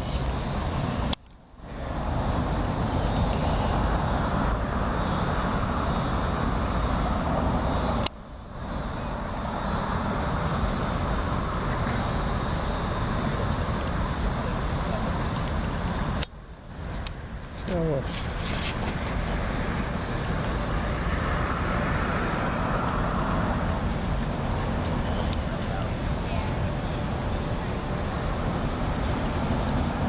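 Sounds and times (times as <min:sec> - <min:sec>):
outdoor background rumble: 0:00.0 - 0:30.0.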